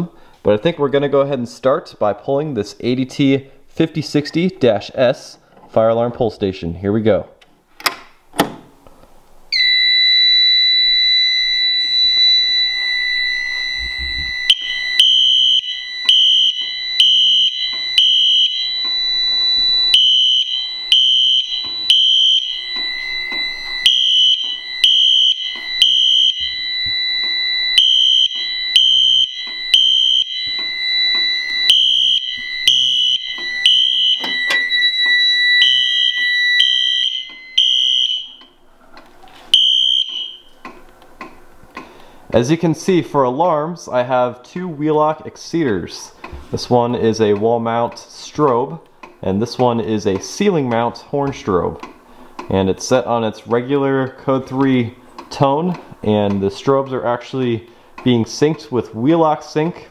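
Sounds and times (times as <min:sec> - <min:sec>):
fire alarm horn blasts: 0:09.5 - 0:38.6, 0:39.5 - 0:40.6
high electronic tone: 0:11.2 - 0:38.4.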